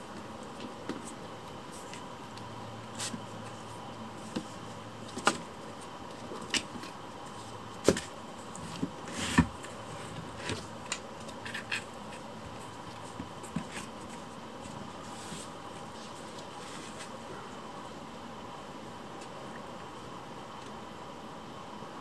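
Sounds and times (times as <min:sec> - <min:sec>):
kitten claws scratching cardboard: 0:00.8 - 0:17.2.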